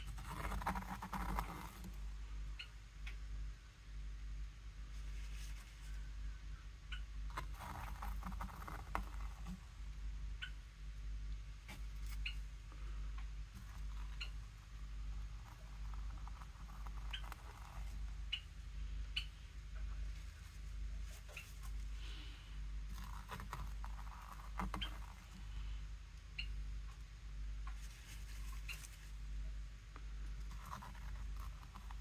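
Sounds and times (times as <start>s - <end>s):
steady low hum: 0.0s - 32.0s
paintbrush strokes on paper: 4.9s - 6.1s, 27.7s - 29.3s.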